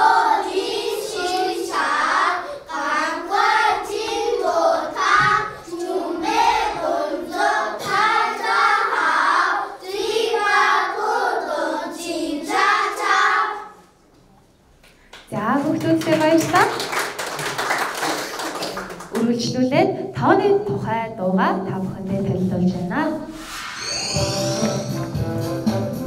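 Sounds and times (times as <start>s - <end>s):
children singing in unison: 0.0s - 13.8s.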